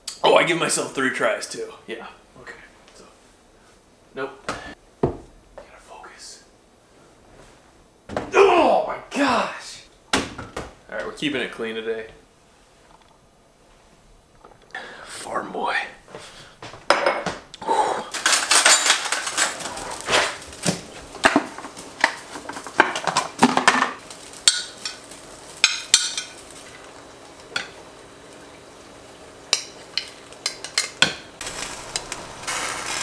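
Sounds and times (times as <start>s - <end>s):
dishes and cutlery clattering: 18.1s - 20.2s.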